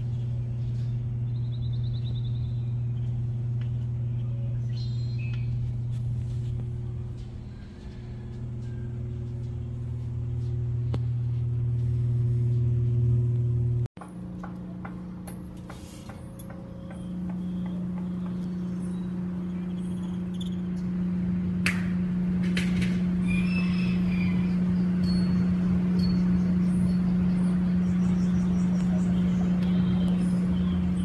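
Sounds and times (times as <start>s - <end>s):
car engine and road hum: 0.0s - 13.9s
higher-pitched steady hum: 0.0s - 31.0s.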